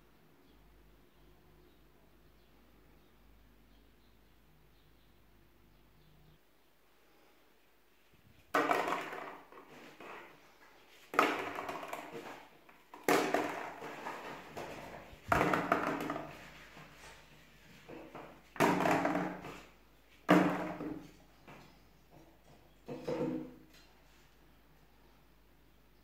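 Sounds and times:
plastic balls dropping into water: 8.5 - 10.2, 11.1 - 16.3, 18.6 - 21.0.

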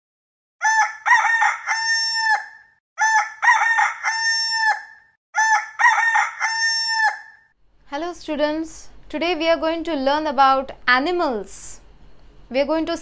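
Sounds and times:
rooster crowing: 0.6 - 7.5.

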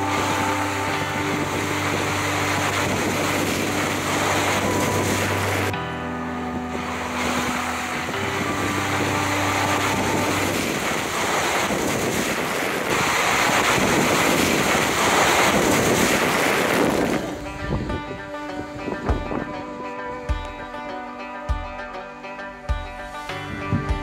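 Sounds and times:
wind rushing over camera: 0.0 - 5.8, 6.4 - 19.6
background music: 0.0 - 24.0
tyres splashing through water: 0.0 - 24.0.

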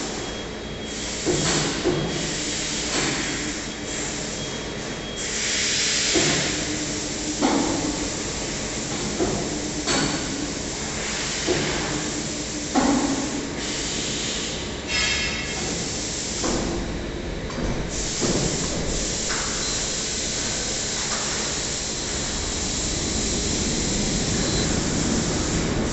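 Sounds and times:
hissing rush of machinery: 17.8 - 25.9.

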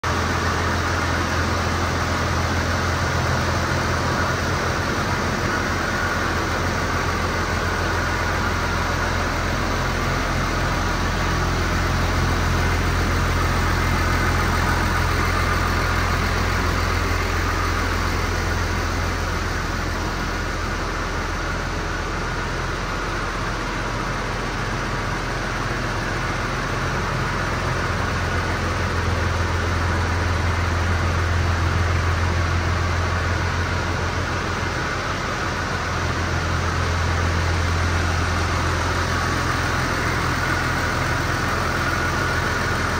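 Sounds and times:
tractor diesel engine idling: 0.0 - 42.9.

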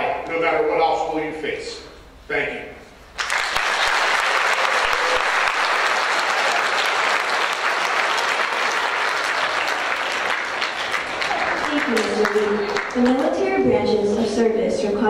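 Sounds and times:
audience applauding: 3.2 - 13.5.

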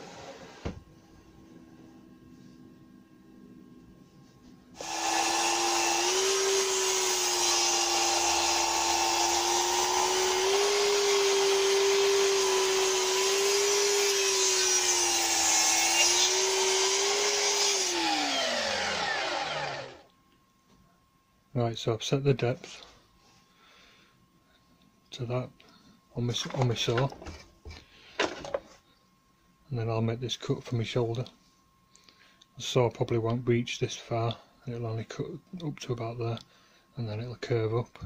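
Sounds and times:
mitre saw cutting wood: 4.8 - 20.0.

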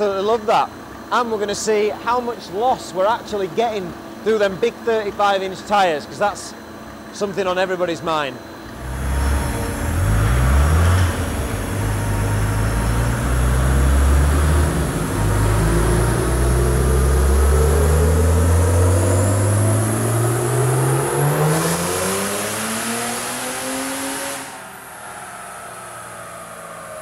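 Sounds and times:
faint high whine: 0.0 - 27.0
diesel engine revving under load: 8.6 - 27.0.

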